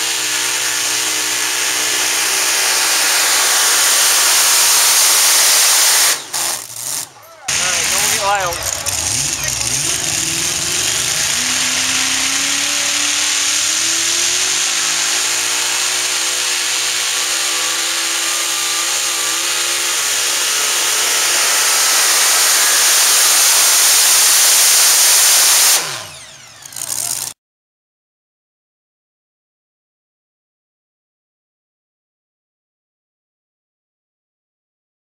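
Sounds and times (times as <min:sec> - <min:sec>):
supercharged engine at full throttle: 0:00.0 - 0:27.4.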